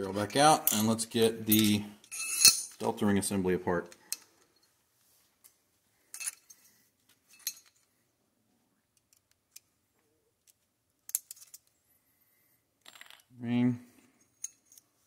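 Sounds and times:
small metal parts clinking: 0.6 - 2.8, 6.1 - 7.9, 10.4 - 11.8, 12.8 - 13.3, 14.2 - 15.0.

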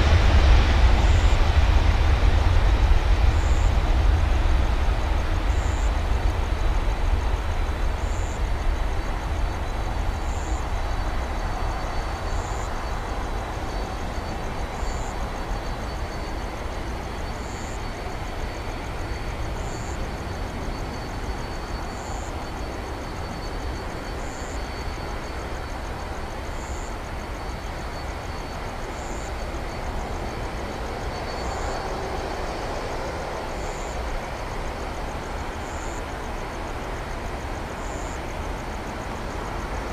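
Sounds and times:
jet engines at takeoff: 0.0 - 39.9.

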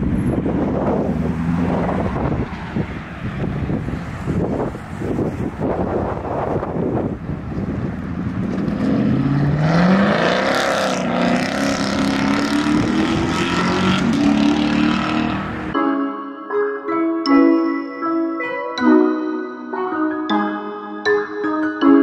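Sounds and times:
wind on microphone: 0.0 - 9.8, 11.1 - 14.5
car engine accelerating hard: 7.6 - 15.7
piano music: 15.0 - 22.0.

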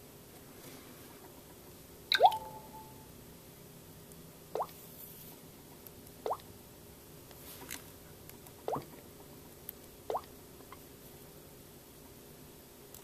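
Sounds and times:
water-drop bloop tones: 2.1 - 3.0, 8.7 - 8.9
soft rustle: 7.3 - 8.0.

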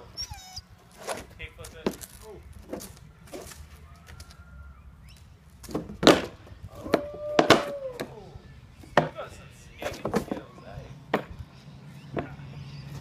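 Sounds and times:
balance board knocking on concrete: 8.9 - 9.2.

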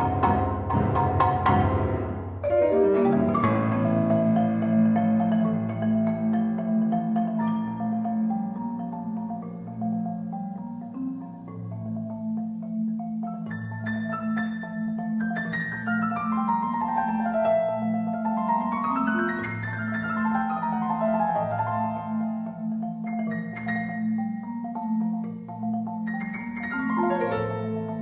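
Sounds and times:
grand piano: 0.0 - 28.0
marimba: 0.0 - 28.0.

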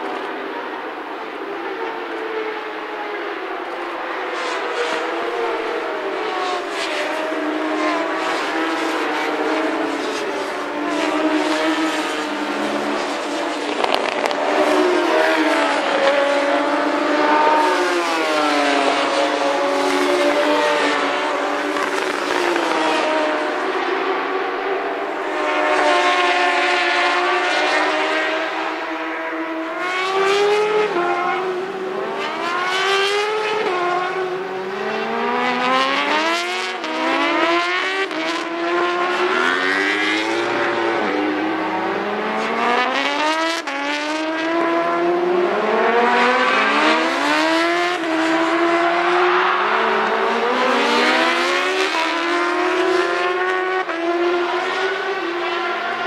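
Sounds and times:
motorbike engines revving past: 10.0 - 23.6.

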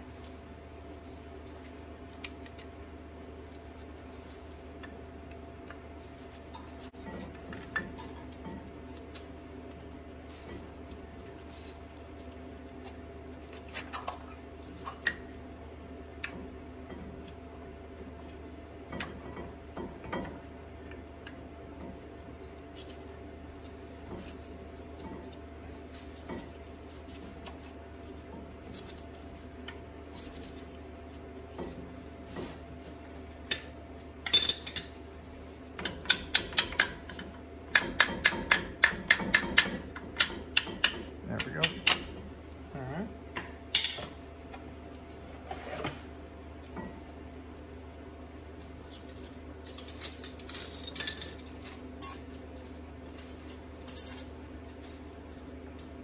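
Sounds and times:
hammer tapping metal: 35.8 - 42.2.

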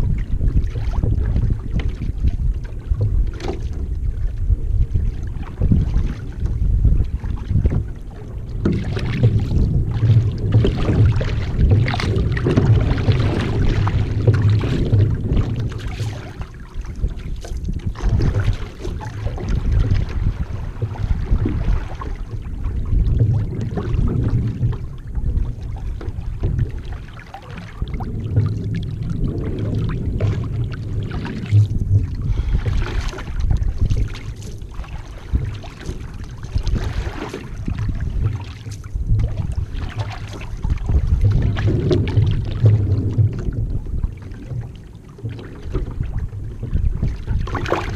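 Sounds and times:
paddle splashes: 0.0 - 47.9
water rushing along hull: 0.0 - 47.9
wind rumble on microphone: 0.0 - 47.9.

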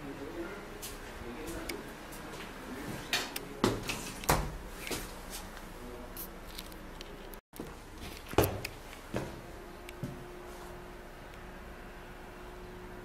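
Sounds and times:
footsteps on hard floor: 7.6 - 9.4.

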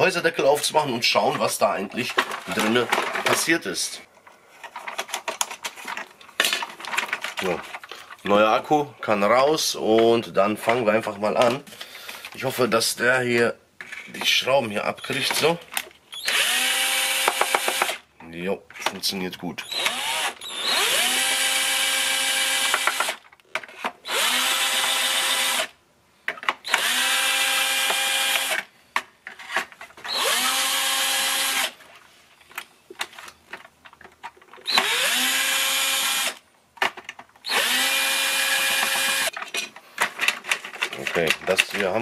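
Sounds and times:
cordless drill whining: 16.1 - 18.0, 19.6 - 23.2, 24.0 - 25.7, 26.6 - 28.7, 30.1 - 31.8, 34.6 - 36.4, 37.4 - 39.3.

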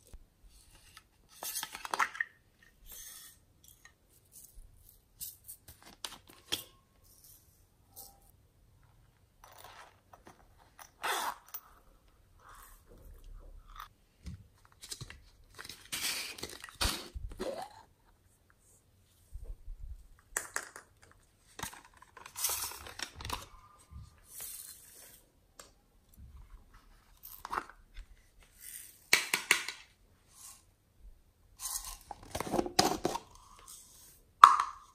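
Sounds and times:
plastic containers clicking and rustling: 20.3 - 23.6, 32.0 - 33.3.

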